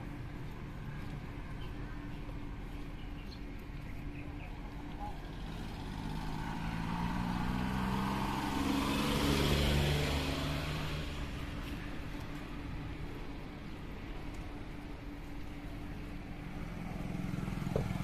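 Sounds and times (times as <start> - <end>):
van driving past: 5.2 - 11.6, 16.4 - 18.0.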